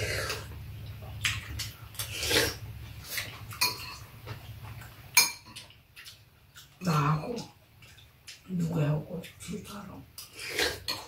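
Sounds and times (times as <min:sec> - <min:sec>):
spoons clinking against bowls: 0:03.6 - 0:04.1, 0:05.2 - 0:05.7.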